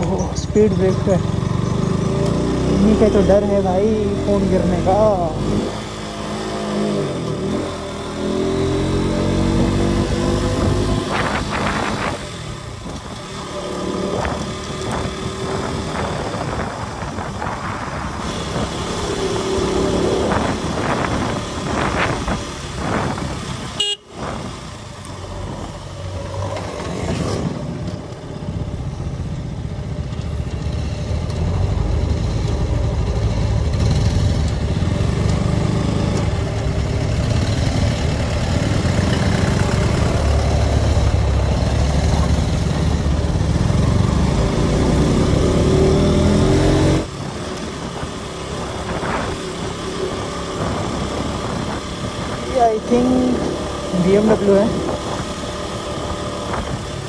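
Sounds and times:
motorcycle engine running: 0:00.0 - 0:57.0
wind noise on microphone: 0:09.0 - 0:57.0
vehicle horns honking: 0:23.7 - 0:24.2.

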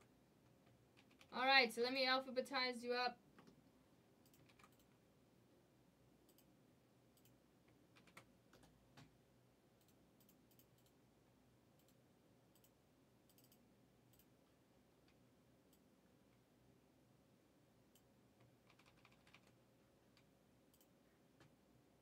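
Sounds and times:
faint computer clicking: 0:00.0 - 0:01.4, 0:03.3 - 0:05.0, 0:06.2 - 0:09.2, 0:09.8 - 0:11.0, 0:11.7 - 0:16.5, 0:17.8 - 0:21.6.

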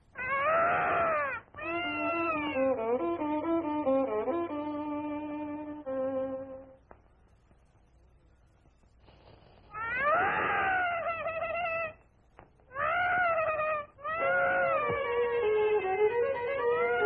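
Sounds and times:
cartoon baby crying: 0:00.2 - 0:02.8, 0:09.8 - 0:12.0, 0:12.7 - 0:17.0
steady musical notes: 0:01.7 - 0:07.0.

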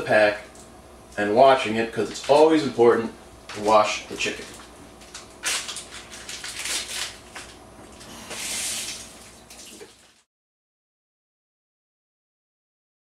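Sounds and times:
tap water splashing: 0:08.3 - 0:10.2.

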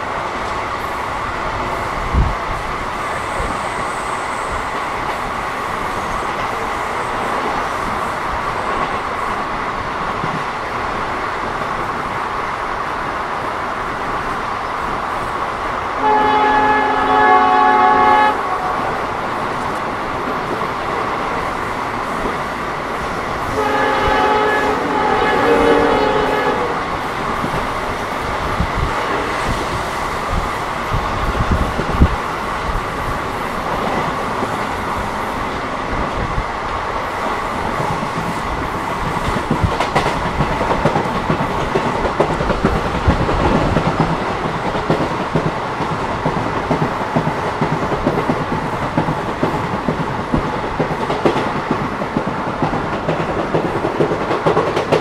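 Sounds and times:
train coach rolling on track: 0:00.0 - 0:55.0
locomotive horn: 0:16.0 - 0:18.9, 0:23.5 - 0:26.8.

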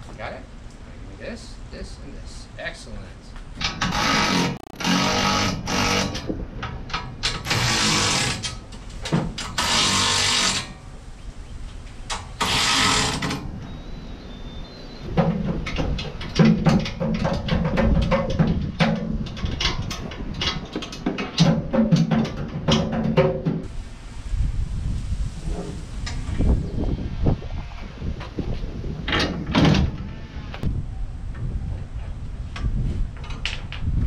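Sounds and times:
electric ratchet bursts: 0:03.8 - 0:06.3, 0:07.4 - 0:08.6, 0:09.6 - 0:10.7, 0:12.1 - 0:13.4.

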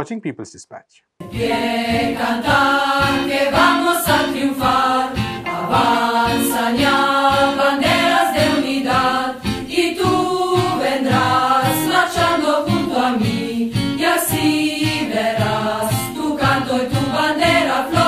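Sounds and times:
choir singing a marching song: 0:01.2 - 0:18.0
steady beat: 0:05.4 - 0:07.1.

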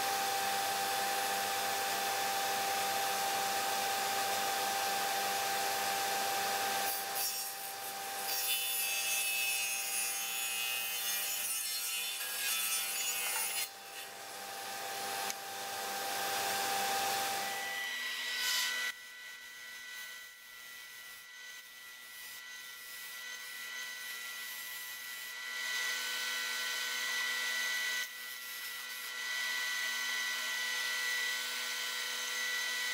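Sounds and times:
table saw motor hum: 0:00.0 - 0:32.9
saw blade cutting wood: 0:06.6 - 0:15.4, 0:16.4 - 0:19.0.

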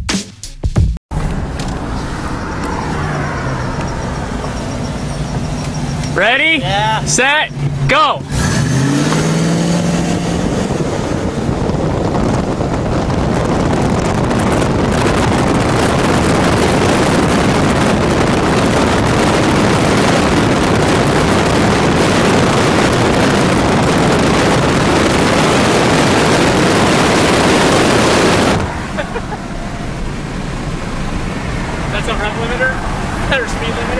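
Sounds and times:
wind buffeting microphone: 0:07.5 - 0:33.9.

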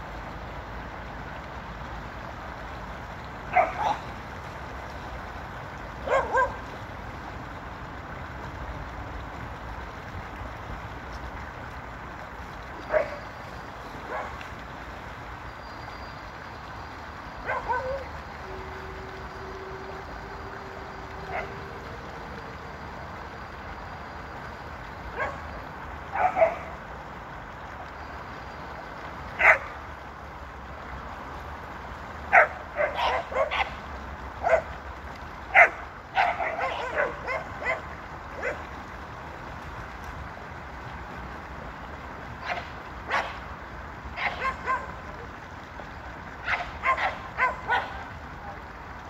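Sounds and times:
steady background hiss: 0:00.0 - 0:49.0
dog barking and yipping: 0:03.5 - 0:04.0, 0:06.0 - 0:06.6, 0:17.4 - 0:18.1, 0:25.2 - 0:25.4, 0:26.1 - 0:26.7, 0:32.3 - 0:33.8, 0:35.6 - 0:38.6, 0:44.2 - 0:45.0, 0:46.4 - 0:48.0.

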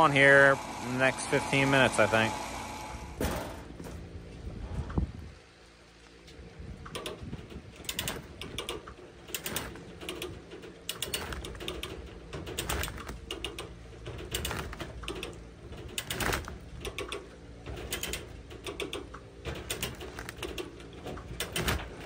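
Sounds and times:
steady hum: 0:00.0 - 0:22.0
winch ratcheting clicks: 0:06.9 - 0:22.0.

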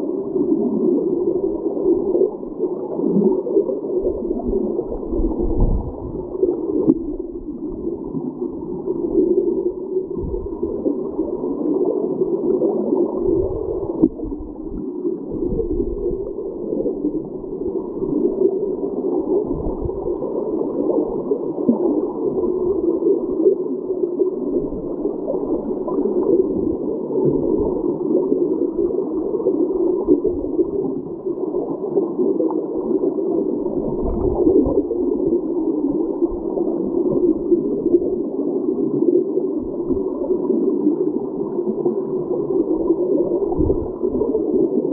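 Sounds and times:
muffled underwater water churning: 0:00.0 - 0:44.9
low underwater thumps: 0:05.4 - 0:06.2.

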